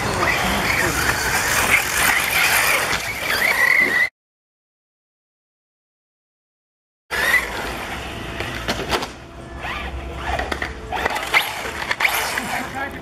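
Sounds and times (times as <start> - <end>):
rc car motor whine: 0.0 - 4.1, 7.1 - 8.7, 9.5 - 13.0.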